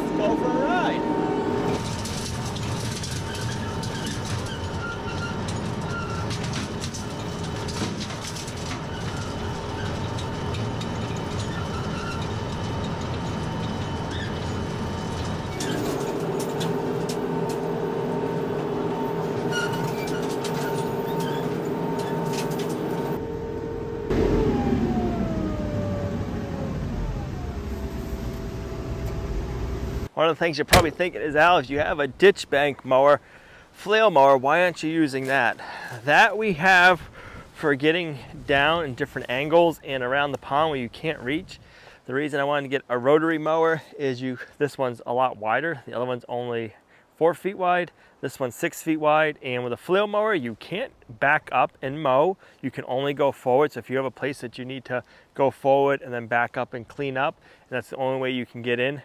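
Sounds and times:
tractor diesel engine running: 0:00.0 - 0:30.1
scattered clicks and knocks: 0:01.8 - 0:17.7.

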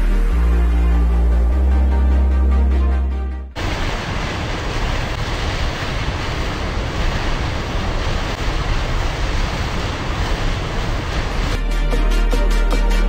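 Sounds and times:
water rushing from dam outlet: 0:03.6 - 0:11.7.

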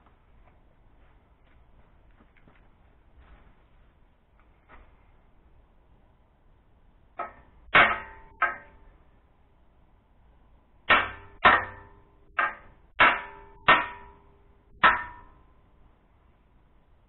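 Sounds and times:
hammer striking metal pipe: 0:07.2 - 0:09.0, 0:10.9 - 0:15.6.

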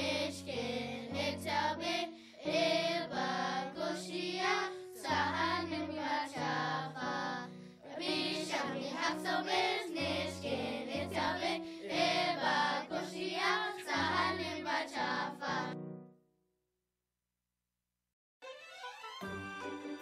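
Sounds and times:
children singing in unison: 0:00.0 - 0:15.8
instrumental backing: 0:18.4 - 0:20.0.

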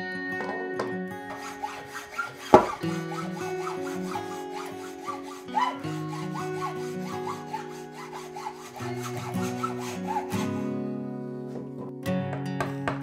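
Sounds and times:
background music: 0:00.0 - 0:13.0
hacksaw cutting steel: 0:01.2 - 0:10.8.

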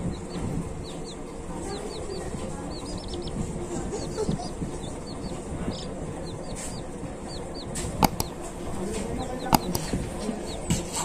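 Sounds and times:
chick peeping: 0:00.0 - 0:11.0
sharp taps: 0:04.2 - 0:11.0.

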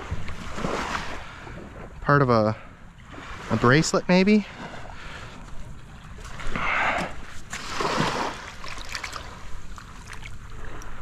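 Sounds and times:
seawater washing and splashing: 0:03.1 - 0:11.0.

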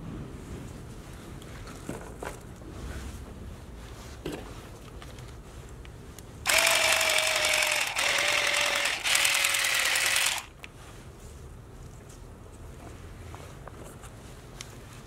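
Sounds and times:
hedge trimmer cutting greens: 0:06.5 - 0:10.5.

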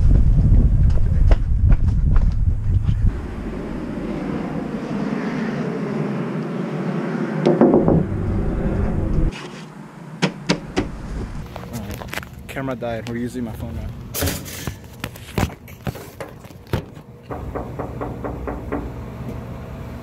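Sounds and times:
steady rushing noise: 0:00.0 - 0:12.6.

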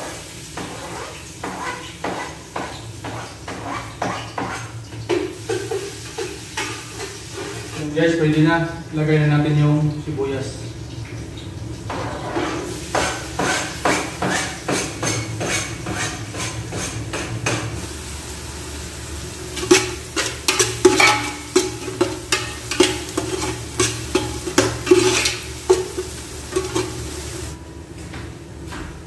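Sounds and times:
onion sizzling in oil: 0:00.0 - 0:03.8, 0:04.4 - 0:07.9, 0:11.5 - 0:27.6
utensil scraping a metal pot: 0:12.2 - 0:17.1, 0:19.6 - 0:27.6.

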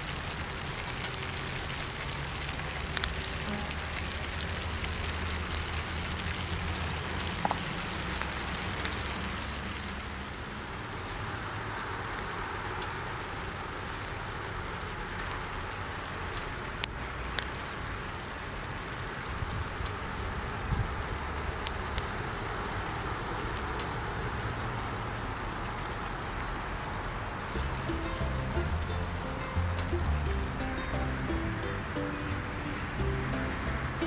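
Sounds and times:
oil popping: 0:00.0 - 0:09.6
food sizzling in hot oil: 0:00.0 - 0:10.2.

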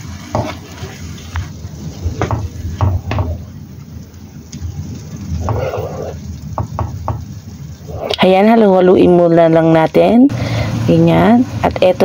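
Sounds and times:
spatula scraping a pan: 0:00.0 - 0:01.5, 0:05.4 - 0:06.2
meat simmering: 0:00.0 - 0:11.4.

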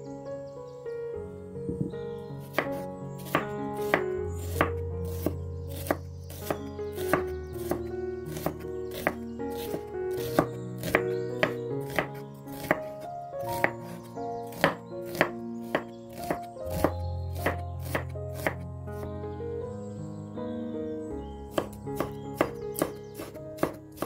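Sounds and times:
background music with held notes: 0:00.0 - 0:24.0
knife tapping chopping board: 0:02.5 - 0:13.0, 0:14.5 - 0:18.6, 0:21.5 - 0:24.0.

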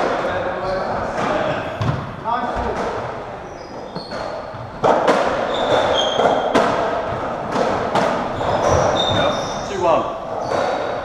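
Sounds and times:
ball hitting walls: 0:01.1 - 0:03.2, 0:03.9 - 0:09.4
racquets striking ball: 0:01.1 - 0:03.2, 0:03.9 - 0:09.4
shoes squeaking on wooden floor: 0:03.4 - 0:07.4, 0:08.0 - 0:10.9.

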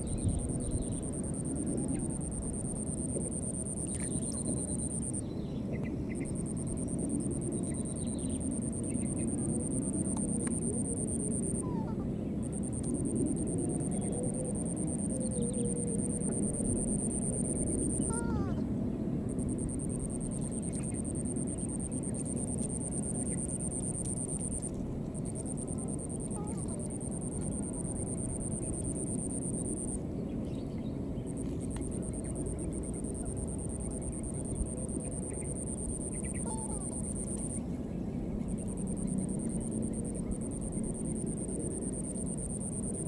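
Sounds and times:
high-pitched insect drone: 0:00.0 - 0:05.3, 0:06.2 - 0:11.7, 0:12.4 - 0:18.4, 0:19.3 - 0:30.0, 0:31.3 - 0:37.6, 0:38.5 - 0:43.0
faint chirping calls: 0:19.3 - 0:43.0.

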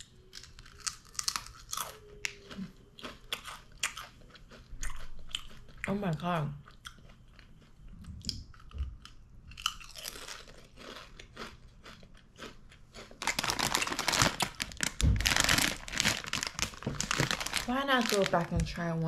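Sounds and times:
chewing potato chip: 0:00.0 - 0:06.0, 0:06.6 - 0:18.4
plastic snack packet crinkling: 0:09.6 - 0:18.8.

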